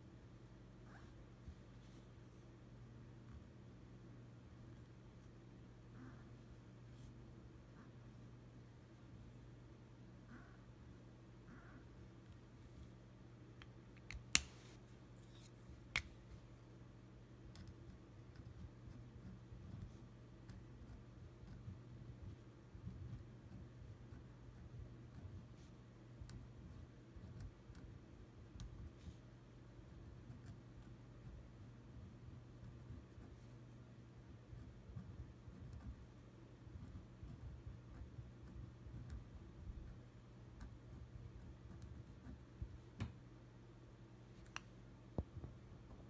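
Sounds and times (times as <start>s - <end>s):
steady low hum: 0.0s - 46.0s
pen scratching on paper: 17.6s - 29.2s, 34.3s - 36.1s, 36.7s - 40.0s, 40.6s - 42.5s.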